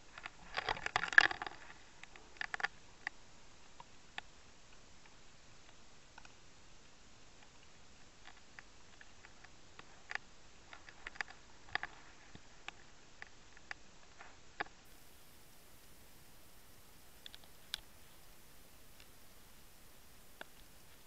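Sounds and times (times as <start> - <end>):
sharp underwater clicks: 14.9 - 21.0.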